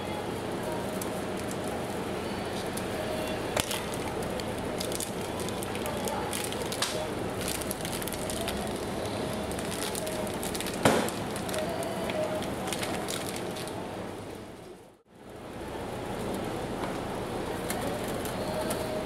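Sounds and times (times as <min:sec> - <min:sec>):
plastic packaging crinkling: 0:03.5 - 0:13.8.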